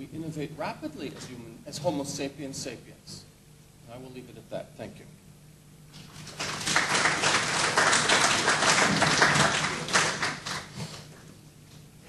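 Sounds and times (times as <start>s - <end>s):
audience applauding: 6.1s - 11.0s.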